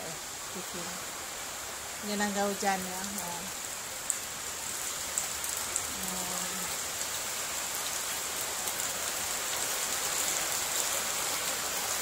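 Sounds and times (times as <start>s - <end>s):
steady rain hiss: 0.0s - 12.0s.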